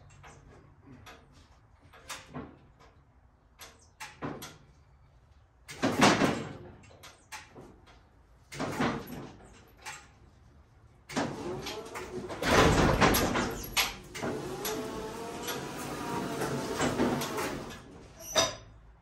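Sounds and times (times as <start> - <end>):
clicks and clunks: 0.0 - 4.8, 5.6 - 10.2, 11.1 - 18.6.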